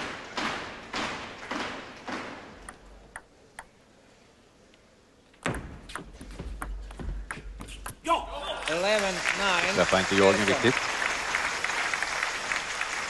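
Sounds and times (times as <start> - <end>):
applause: 8.6 - 13.0.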